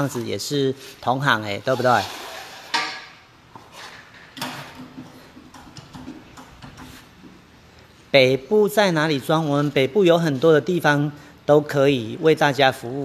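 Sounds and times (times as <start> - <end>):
metal tool scraping: 1.6 - 4.3.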